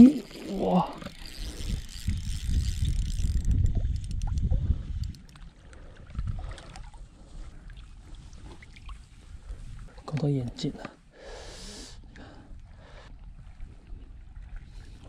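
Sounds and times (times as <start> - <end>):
fishing reel clicking: 0.0 - 5.5.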